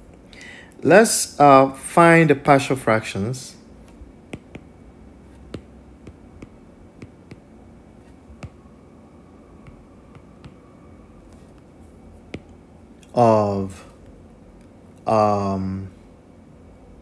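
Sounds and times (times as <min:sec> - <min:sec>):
stylus tapping on glass screen: 0:04.3 - 0:04.7, 0:05.5 - 0:07.5, 0:08.4 - 0:08.6, 0:09.6 - 0:10.6.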